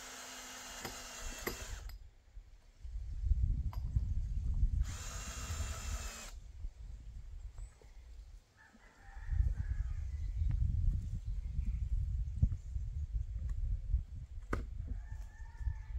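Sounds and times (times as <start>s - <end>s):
cordless drill driving screw: 0.0s - 2.0s, 4.8s - 6.4s.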